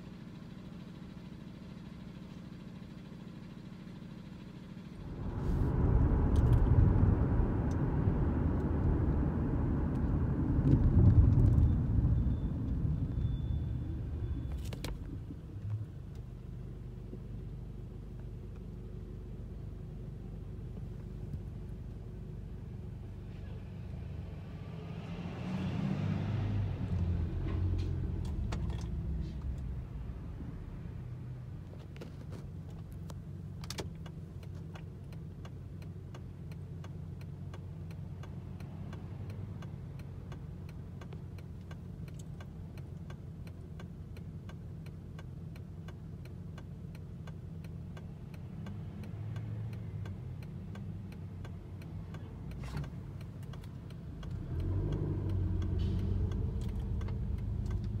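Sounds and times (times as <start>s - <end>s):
regular ticking: 32.6s - 58.0s.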